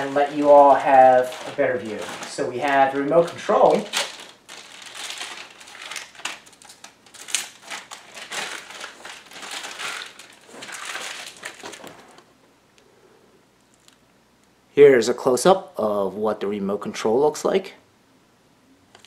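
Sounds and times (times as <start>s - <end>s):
plastic wrapping crinkling: 0.0s - 12.3s.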